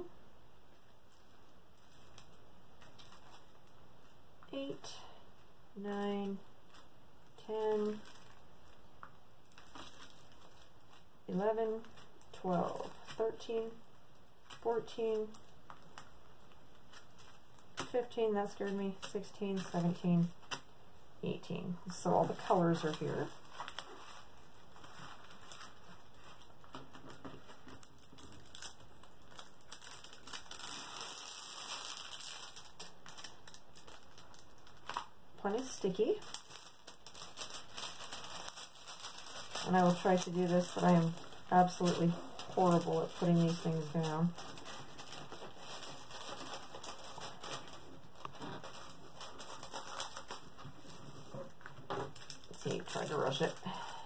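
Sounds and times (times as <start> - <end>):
plastic film crinkling: 0.7 - 4.2, 6.2 - 20.7, 21.9 - 54.0
plastic bags crinkling: 1.1 - 4.2, 6.6 - 18.0, 22.2 - 54.0.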